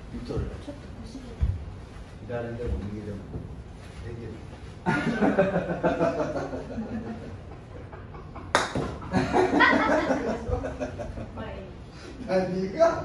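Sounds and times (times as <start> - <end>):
men laughing: 4.8 - 11.5.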